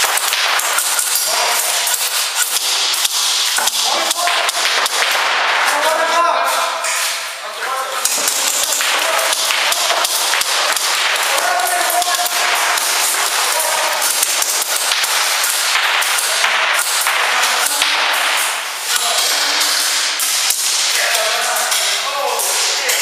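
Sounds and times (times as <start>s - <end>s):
airsoft guns firing rapidly: 0.0s - 5.7s, 8.0s - 22.8s.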